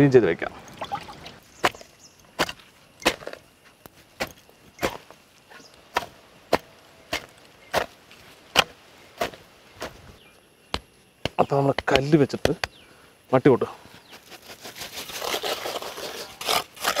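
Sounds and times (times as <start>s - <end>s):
hoe chopping into hard soil: 2.4s - 3.4s, 4.2s - 5.1s, 5.9s - 10.0s.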